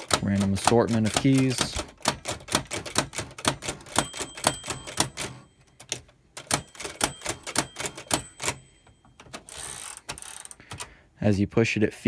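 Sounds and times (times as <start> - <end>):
typewriter keys clacking: 0.0 - 10.9.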